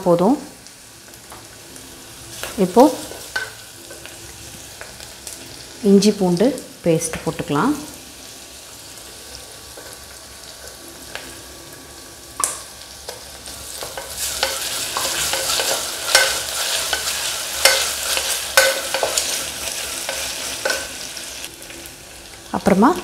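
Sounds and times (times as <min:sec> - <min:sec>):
onions sizzling in oil: 0:00.0 - 0:23.0.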